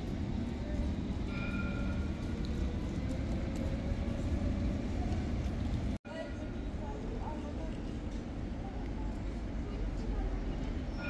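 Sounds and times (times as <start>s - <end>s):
tram rumbling on rails: 0.0s - 11.0s.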